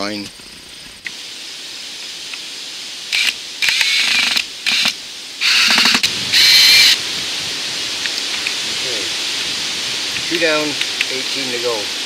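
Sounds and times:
power driver whirring: 3.2 - 7.0.

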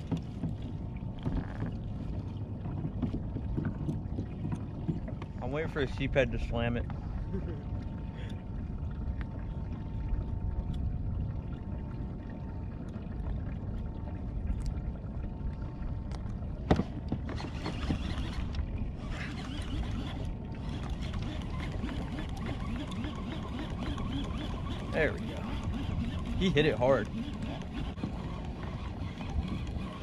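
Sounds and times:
water lapping: 0.0 - 30.0
wind: 0.0 - 30.0
fishing reel whirring: 17.3 - 30.0.

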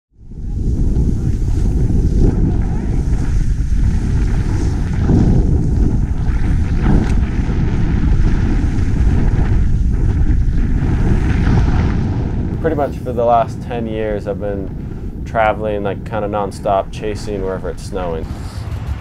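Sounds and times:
wind rushing over microphone: 0.1 - 19.0
snowboard hissing in snow: 0.5 - 12.0.

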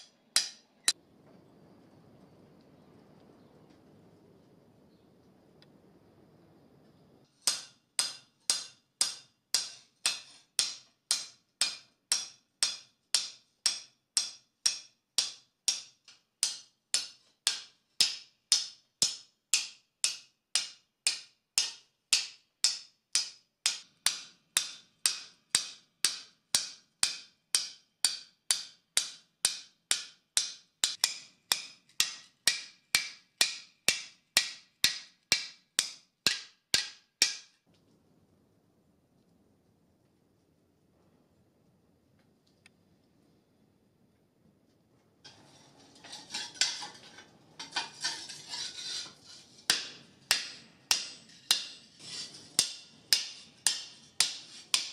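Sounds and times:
hammer striking metal sheet: 20.0 - 37.6, 45.3 - 54.9.

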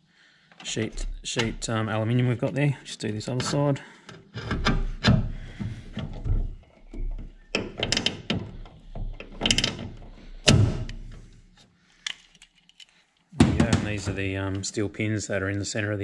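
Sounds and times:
rivet gun clicks and clunks: 3.4 - 13.4.

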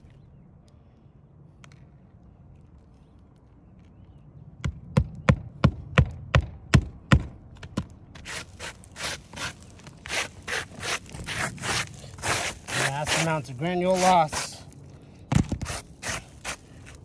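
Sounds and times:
hand rubbing gritty shingles: 8.2 - 14.9, 15.5 - 17.0.

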